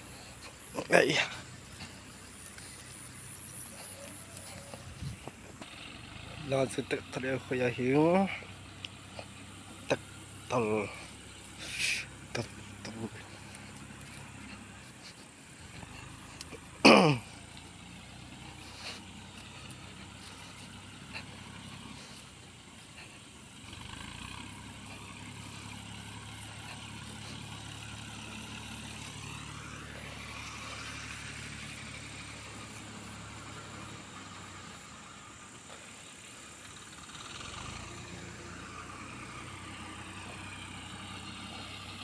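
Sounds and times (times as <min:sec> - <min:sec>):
tractor engine chugging: 0:00.0 - 0:42.0.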